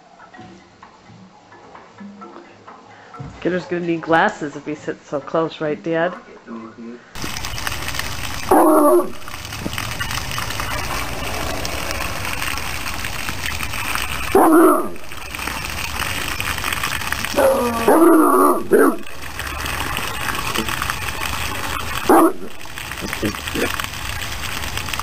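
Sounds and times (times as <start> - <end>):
water splashing on ground: 7.2 - 25.0
dog barking: 8.5 - 9.2, 14.3 - 15.0, 17.8 - 19.1, 22.0 - 22.5.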